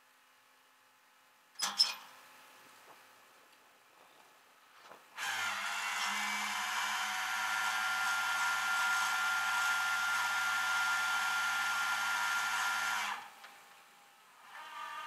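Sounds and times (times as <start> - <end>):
hydraulic winch hiss and whine: 5.2 - 13.4, 14.4 - 15.0.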